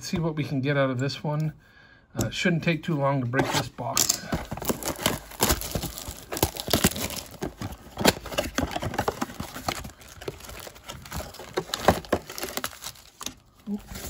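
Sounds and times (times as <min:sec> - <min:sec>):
cardboard box opening: 0:03.4 - 0:14.0
card packs rustling and tapping: 0:04.0 - 0:14.0
plastic wrap tearing and crinkling: 0:04.5 - 0:14.0.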